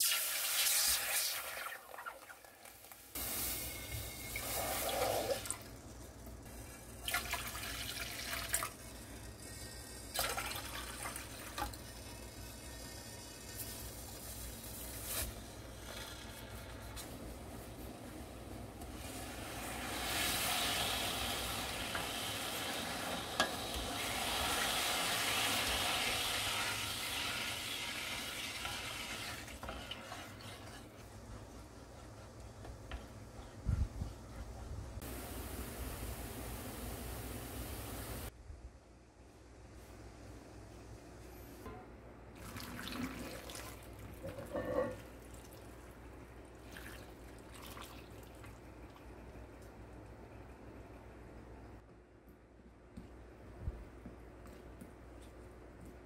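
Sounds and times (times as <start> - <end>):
spoon stirring liquid in saucepan: 28.2 - 31.2
liquid pouring and splashing: 42.4 - 44.5, 46.5 - 49.1.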